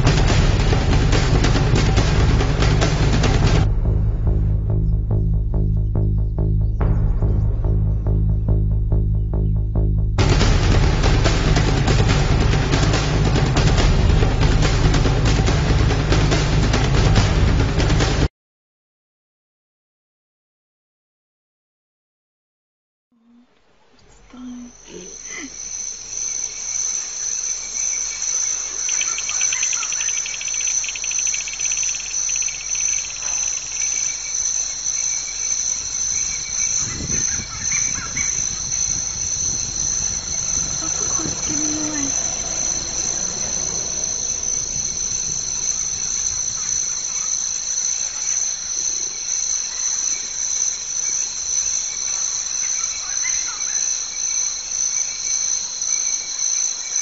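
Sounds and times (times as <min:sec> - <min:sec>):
low rumble: 0:00.0 - 0:18.3, 0:34.6 - 0:48.7
shrill insect chorus: 0:24.0 - 0:57.0
fast insect trill: 0:24.3 - 0:57.0.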